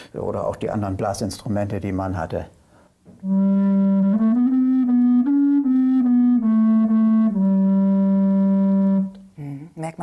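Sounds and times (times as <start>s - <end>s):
bass recorder playing low notes: 3.2s - 9.3s.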